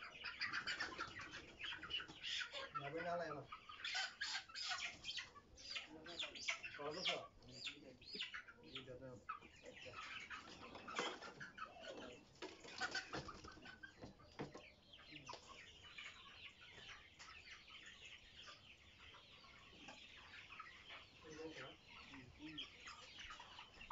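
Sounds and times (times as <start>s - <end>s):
chickens clucking and squawking: 0.0s - 23.9s.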